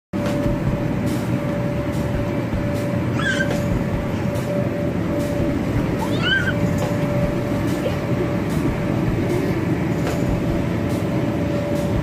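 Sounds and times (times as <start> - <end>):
inflation blower droning: 0.2 - 12.0
child squealing: 3.1 - 4.3, 6.0 - 6.7.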